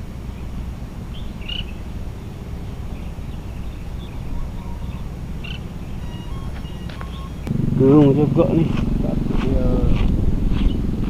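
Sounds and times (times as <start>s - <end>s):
wind rumbling on microphone: 0.0s - 11.0s
bird chirps: 0.3s - 7.6s.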